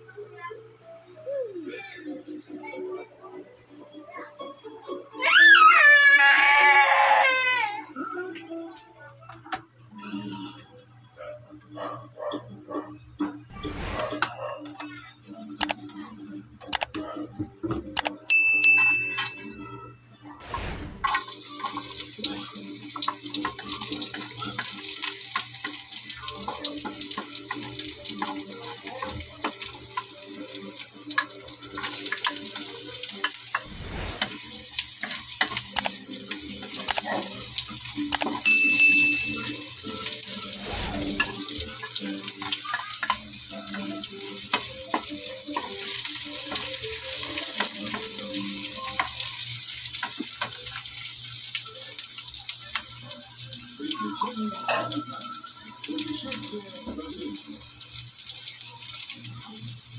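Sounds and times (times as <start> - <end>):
food sizzling in hot oil: 20.4 - 59.9.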